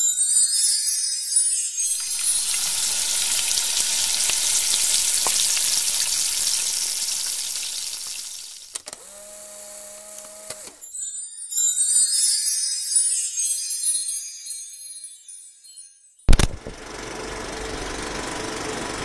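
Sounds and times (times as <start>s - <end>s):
food deep-frying in hot oil: 1.9s - 8.8s.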